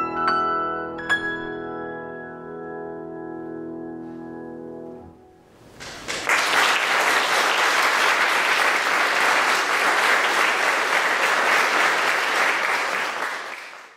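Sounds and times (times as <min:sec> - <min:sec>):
audience applauding: 0:05.7 - 0:13.9.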